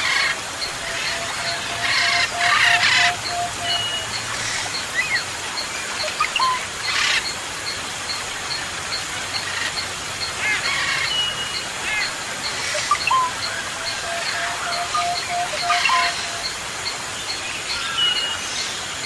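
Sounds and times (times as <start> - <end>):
birds chirping and whistling: 0.0 - 5.3, 6.0 - 7.3, 9.4 - 16.6
steady hiss: 0.0 - 19.0.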